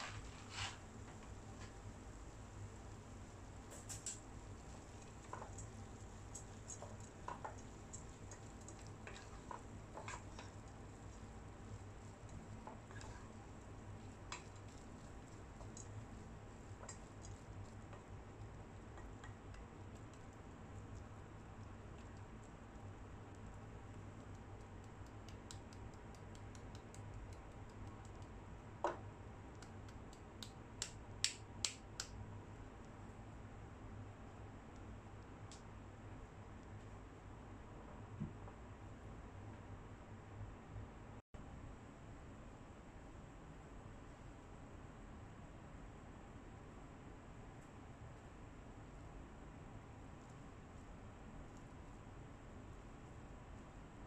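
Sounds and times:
spatula scraping a wok: 0.0 - 0.9
low steady hum: 0.0 - 54.0
wooden spatula ticking in a pan: 5.0 - 11.3, 23.4 - 28.4.

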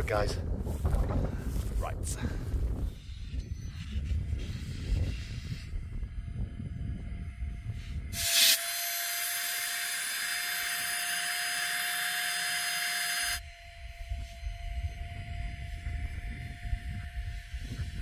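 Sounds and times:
wind rumbling on microphone: 0.0 - 8.6, 13.4 - 18.0.

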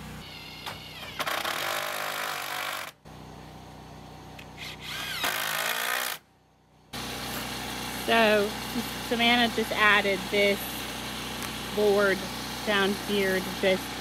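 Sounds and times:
cordless drill driving screws: 0.2 - 3.0, 4.5 - 6.2.

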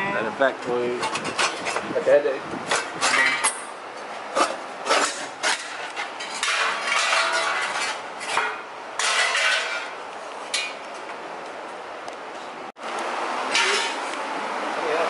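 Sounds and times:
metal clinking and clattering: 4.9 - 10.8.

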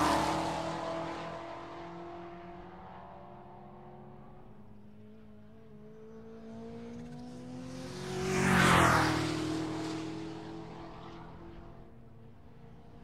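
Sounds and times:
car driving past at speed: 0.0 - 3.8, 6.6 - 12.0.

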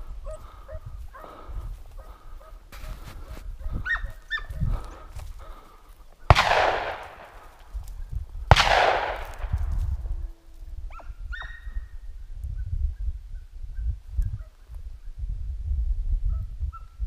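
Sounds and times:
dog barking: 3.6 - 4.7, 10.9 - 11.7
shotgun shots with echo: 6.3 - 7.5, 8.5 - 9.7.

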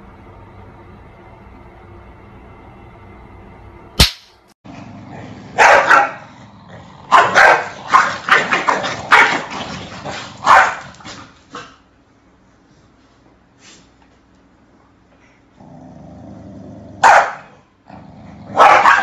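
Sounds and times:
sharp click: 4.0 - 4.4
dogs barking: 5.5 - 6.3, 7.1 - 11.7, 17.0 - 17.6, 18.5 - 19.0.

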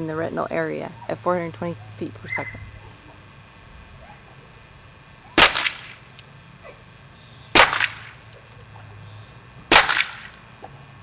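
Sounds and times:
paintball marker shots: 5.4 - 6.0, 7.6 - 8.2, 9.7 - 10.4
paintball bursting on a mask: 5.4 - 6.1, 7.5 - 8.2, 9.7 - 10.4.

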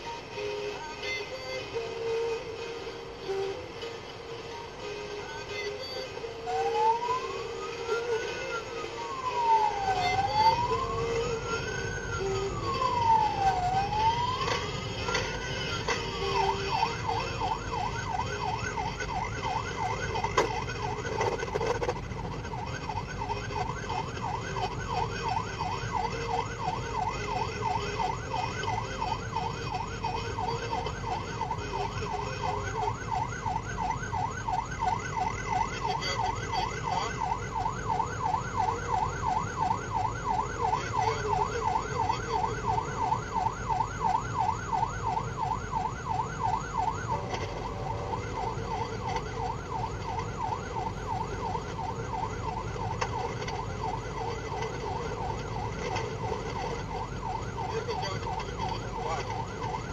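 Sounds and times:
car engine and tyres: 0.0 - 59.9
police siren yelp: 0.0 - 59.9.

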